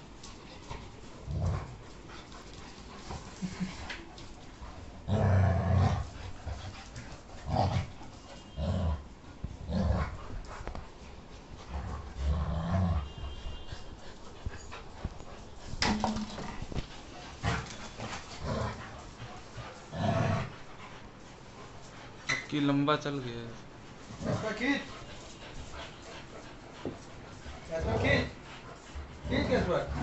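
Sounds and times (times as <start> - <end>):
dogs growling: 1.1 - 2.4, 4.7 - 10.6, 11.6 - 13.2, 14.2 - 22.2, 24.0 - 30.0.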